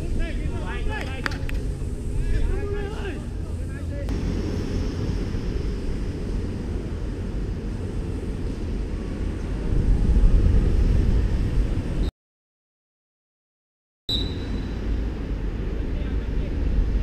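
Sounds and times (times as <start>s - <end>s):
wind buffeting microphone: 0.0s - 12.1s.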